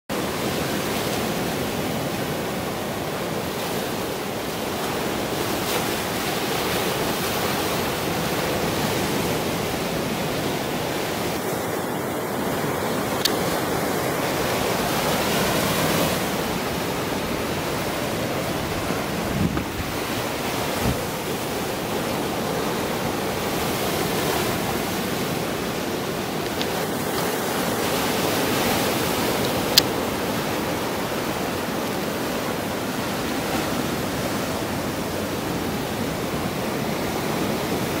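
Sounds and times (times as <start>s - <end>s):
surf washing over rocks: 0.1s - 38.0s.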